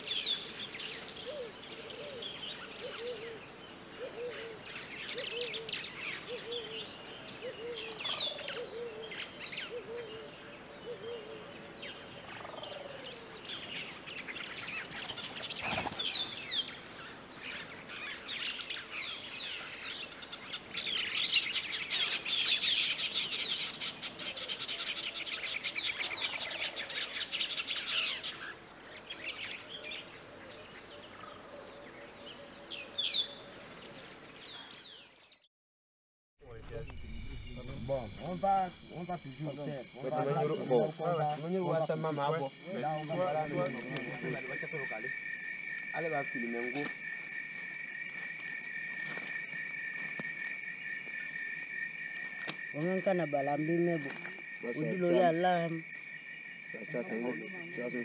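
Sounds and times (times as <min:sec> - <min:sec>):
birds chirping and calling: 0:00.0 - 0:35.4, 0:36.6 - 0:46.9
pulsing high note: 0:36.4 - 0:39.8.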